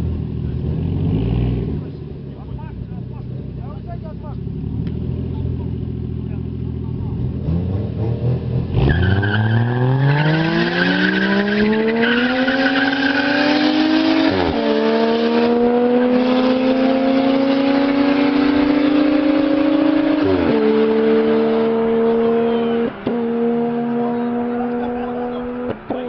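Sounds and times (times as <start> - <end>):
car engines accelerating: 0.0 - 26.0
tyre squeal: 8.8 - 13.5.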